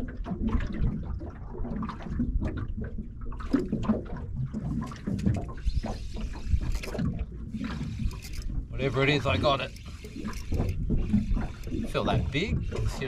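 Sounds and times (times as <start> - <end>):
water slapping against boat hull: 0.0 - 13.0
fishing reel winding: 5.8 - 7.0, 7.6 - 13.0.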